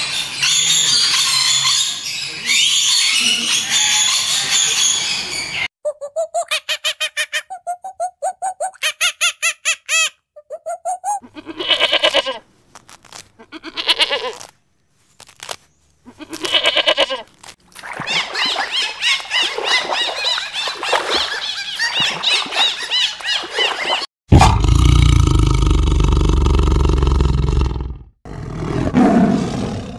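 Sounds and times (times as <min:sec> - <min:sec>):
high squeaky chirps: 0:00.4 - 0:11.3
overlapping squeaky calls: 0:00.4 - 0:12.2
goat bleating: 0:11.2 - 0:12.4, 0:13.4 - 0:14.5, 0:16.1 - 0:17.3.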